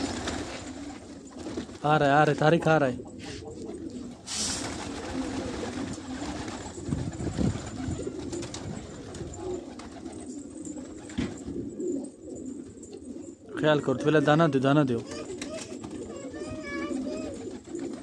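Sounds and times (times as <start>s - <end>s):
wings fluttering: 0.0s - 2.0s, 3.1s - 12.0s, 15.0s - 18.0s
pigeons cooing: 0.0s - 18.0s.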